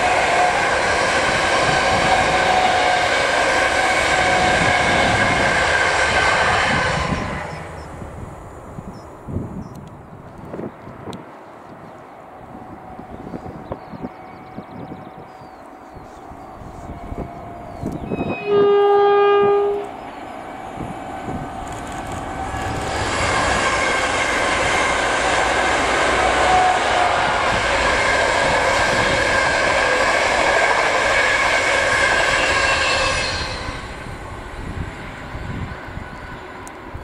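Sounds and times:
train horn: 0.0 - 7.7, 16.7 - 21.4, 22.3 - 34.1
trains passing on rails: 0.0 - 37.0.

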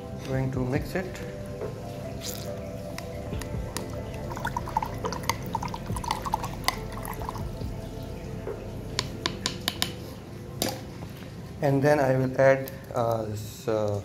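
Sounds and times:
baster squirting water: 2.2 - 7.8
bubbly gurgles and splashes: 3.3 - 7.8.

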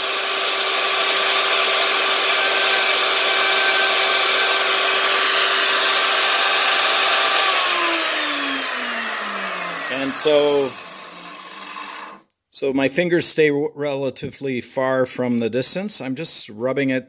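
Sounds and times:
router bit shaping plywood edge: 0.0 - 12.2
router whining: 0.0 - 12.3.

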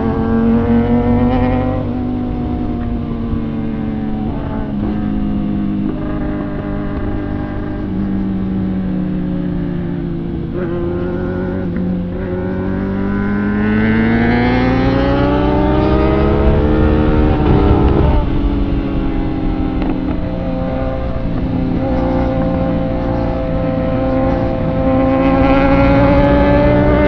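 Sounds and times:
motorcycle engine accelerating: 0.0 - 27.0
wind buffeting microphone: 13.1 - 27.0.

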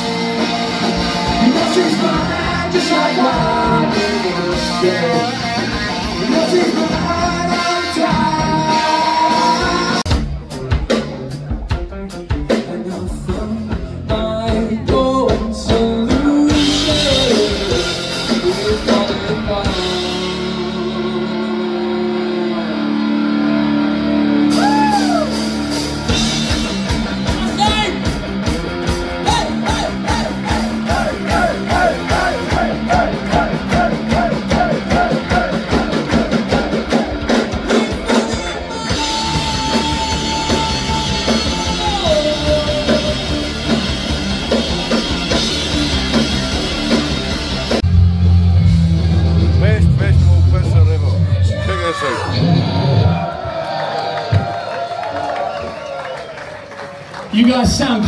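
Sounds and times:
person singing: 0.0 - 10.2, 12.3 - 25.3, 29.2 - 43.8
drum kit: 0.0 - 23.1, 24.0 - 55.5
guitar: 0.0 - 58.0.

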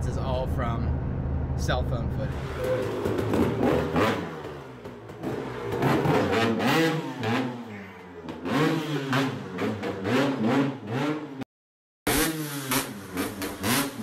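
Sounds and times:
dirt bike engine revving: 2.3 - 11.4, 12.1 - 14.0.

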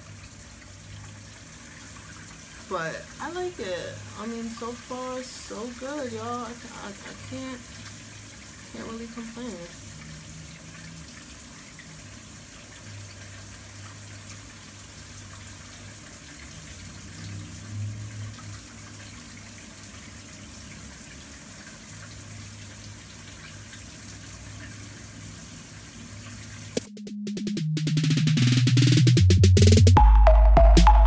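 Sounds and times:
running tap water: 0.0 - 26.9
electronic music: 26.8 - 31.0.

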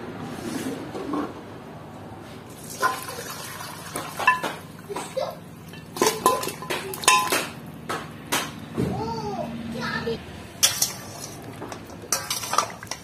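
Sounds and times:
liquid running into bowl: 2.5 - 4.6
metal pot knocking against bowl: 4.2 - 4.7, 5.8 - 7.6.

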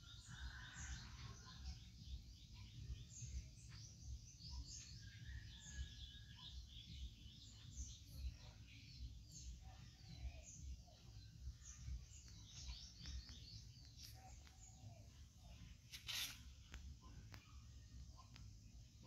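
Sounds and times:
faint bird chirping: 0.0 - 19.0
brief rustle: 15.9 - 16.8.

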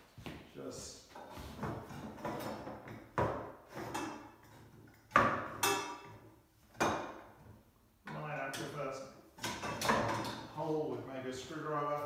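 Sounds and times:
metal tubes knocking and clanking: 1.6 - 8.8, 9.4 - 10.5.

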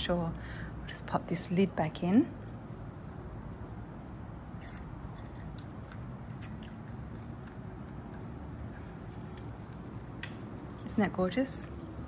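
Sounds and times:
low background hum: 0.0 - 12.0
metal bottle clicks and scrapes: 4.6 - 10.2.

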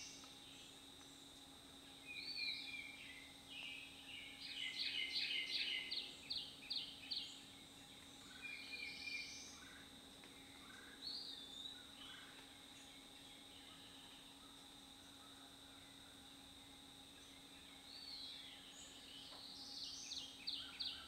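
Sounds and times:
songbirds singing: 0.0 - 15.9, 17.2 - 21.0.

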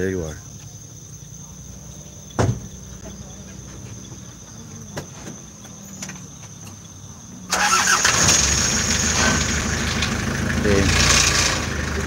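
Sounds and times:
insects trilling: 0.0 - 12.0
vehicle engine running: 7.5 - 12.0.

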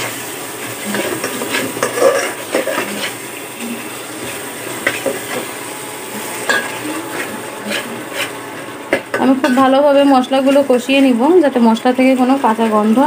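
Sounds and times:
light sizzle: 0.0 - 13.0
spoon scraping metal pot: 6.5 - 8.4.

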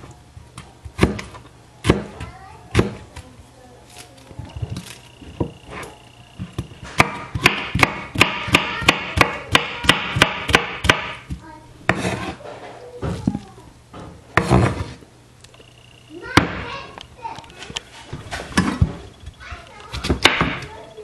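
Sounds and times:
knife chopping on wooden board: 0.8 - 3.0, 6.5 - 12.4, 14.4 - 15.0.

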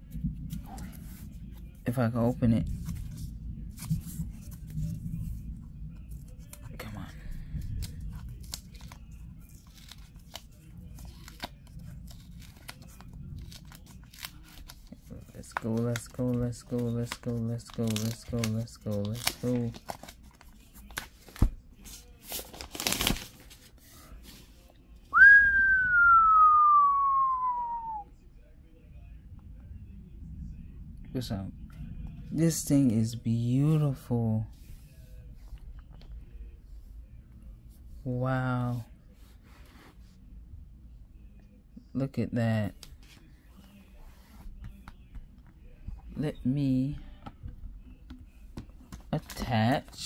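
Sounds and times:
packaging rustling and tearing: 7.6 - 23.8
person whistling falling note: 25.1 - 28.0.

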